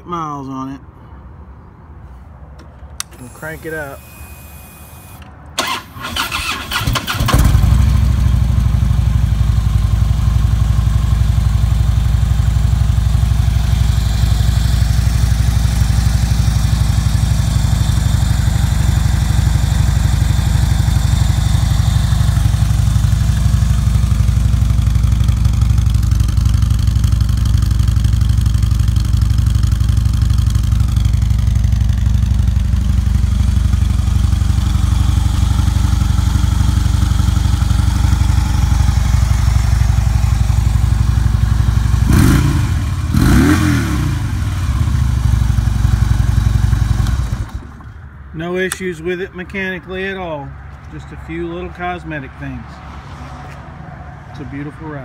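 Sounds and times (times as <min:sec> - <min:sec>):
electric starter cranking engine: 0:03.0 - 0:07.8
motorcycle engine idling: 0:05.6 - 0:48.0.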